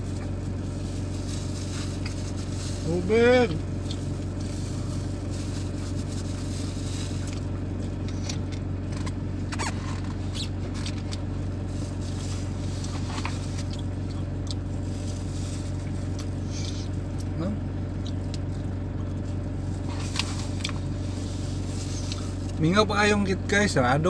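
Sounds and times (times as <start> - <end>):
plastic gloves crinkling: 0.0 - 8.1, 10.1 - 17.2, 18.1 - 22.7
van engine idling: 0.0 - 24.0.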